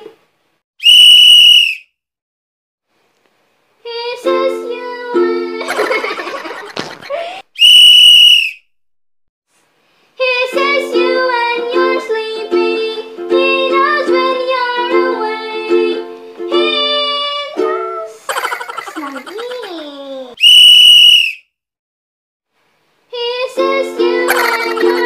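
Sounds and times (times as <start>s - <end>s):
loud steady whistle: 0.8s - 1.9s, 7.6s - 8.6s, 20.4s - 21.5s
girl singing: 3.8s - 6.0s, 10.2s - 18.3s, 23.1s - 25.0s
ukulele strumming: 4.2s - 5.7s, 10.5s - 18.1s, 23.5s - 25.0s
person laughing: 5.6s - 7.5s, 18.3s - 20.4s, 24.2s - 25.0s.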